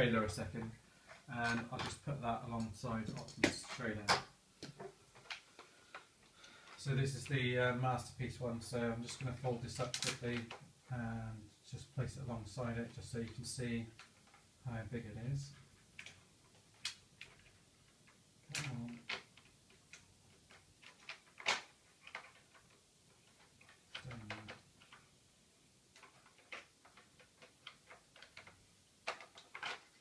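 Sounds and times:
plastic parts clicking: 0.6s - 2.0s, 2.6s - 6.8s, 9.0s - 10.7s, 15.6s - 25.2s, 25.9s - 30.0s.

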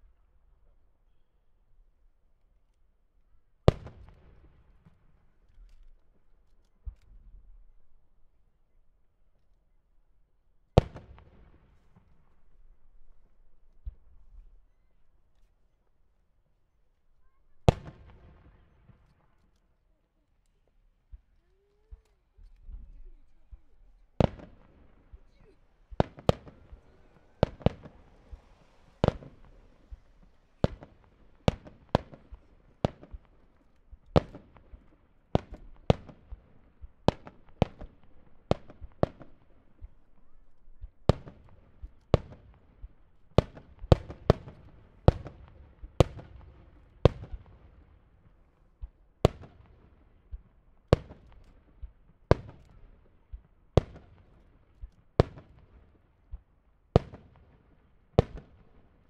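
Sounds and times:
fireworks bursting with bangs: 10.8s - 12.3s, 17.7s - 19.4s, 21.1s - 40.2s, 41.0s - 59.0s.

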